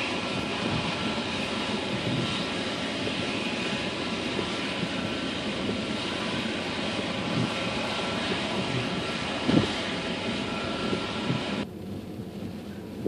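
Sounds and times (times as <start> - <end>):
car engine rumbling in cabin: 0.0 - 13.0.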